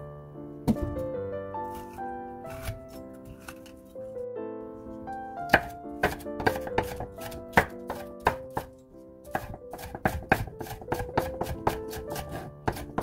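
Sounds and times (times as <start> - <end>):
background music: 0.0 - 13.0
knife chopping on wooden board: 2.5 - 3.7, 5.5 - 13.0.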